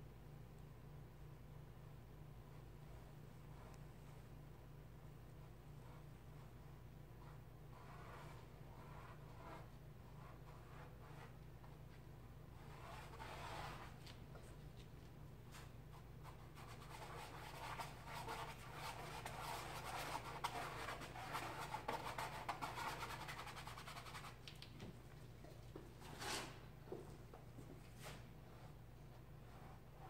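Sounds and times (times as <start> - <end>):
paintbrush scratching on canvas: 7.2 - 11.4, 12.6 - 14.1, 15.6 - 24.4.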